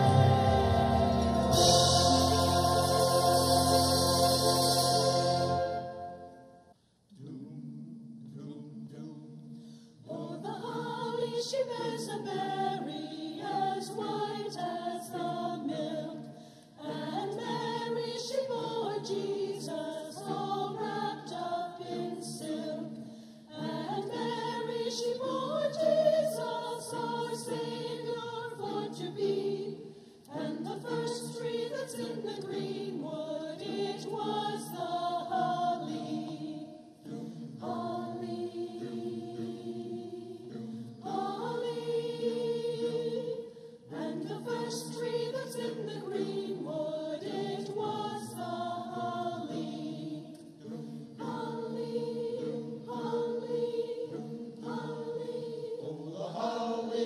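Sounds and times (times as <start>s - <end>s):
choir singing a carol: 0.0s - 57.0s.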